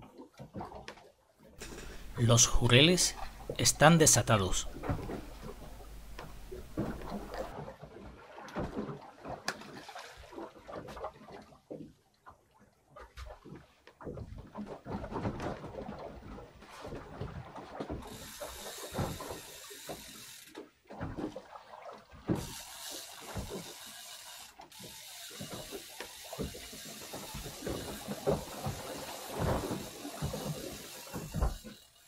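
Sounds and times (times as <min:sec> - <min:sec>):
fishing reel gears ticking: 0:18.0 - 0:20.6, 0:22.3 - 0:32.0.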